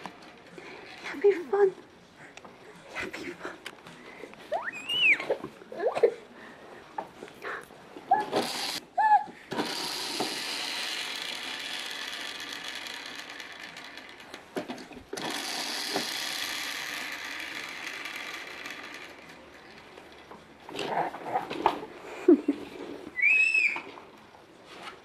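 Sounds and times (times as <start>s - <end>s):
plastic toy mechanism whirring: 8.1s - 8.8s, 9.5s - 21.8s.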